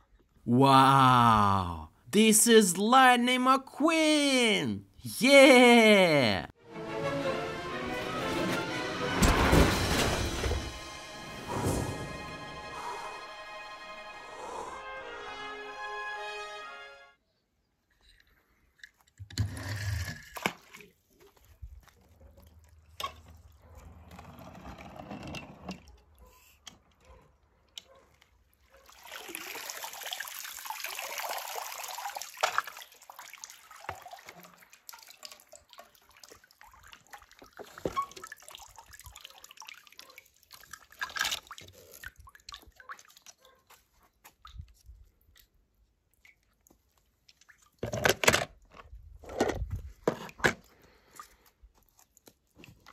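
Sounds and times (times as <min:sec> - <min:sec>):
water splashing and sloshing: 0:20.2 - 0:24.1, 0:28.1 - 0:52.9.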